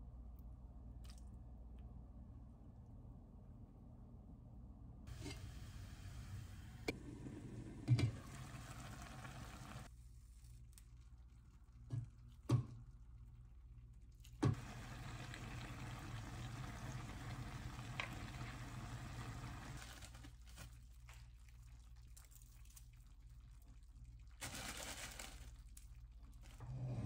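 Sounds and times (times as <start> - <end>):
stew simmering: 5.1 - 9.9, 10.9 - 24.4
plastic bag crinkling: 19.8 - 21.2, 24.4 - 26.5.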